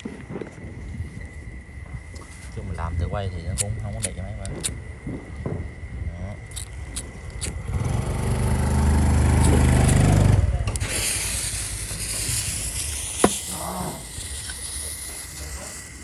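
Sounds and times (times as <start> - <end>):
firework fountain hissing: 7.0 - 16.0
firework fuse hissing: 8.9 - 16.0
lighter clicking: 9.4 - 10.0, 12.9 - 14.8.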